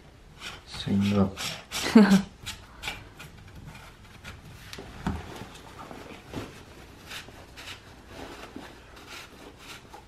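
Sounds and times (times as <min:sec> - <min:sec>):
fabric rustling against plastic: 0:04.6 - 0:10.0.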